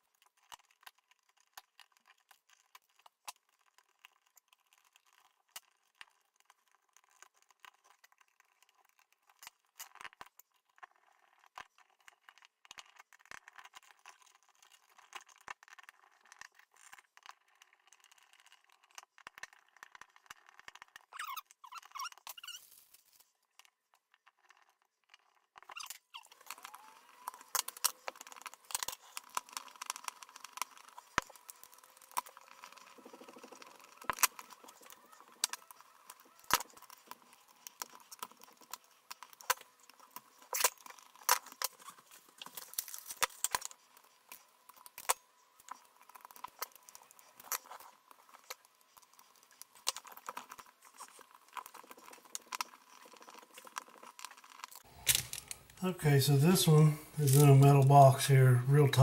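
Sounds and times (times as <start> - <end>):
clicks and rattles of wiring: 49.8 - 55.8.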